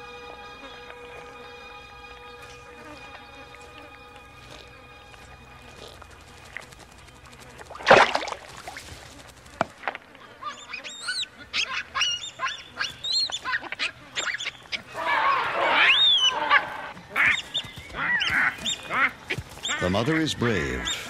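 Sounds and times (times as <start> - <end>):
loud splash: 7.6 - 8.8
baboons screaming: 10.2 - 21.0.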